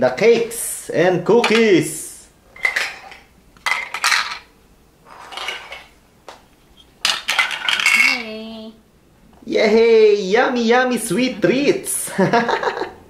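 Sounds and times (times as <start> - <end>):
plastic toys clattering on plate: 2.6 - 4.5, 5.2 - 6.0, 7.0 - 8.4.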